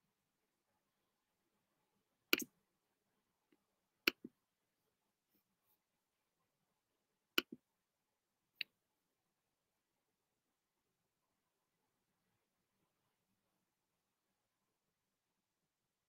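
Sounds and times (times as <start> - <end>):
computer mouse clicks: 2.3 - 2.5, 4.1 - 4.3, 7.4 - 7.6.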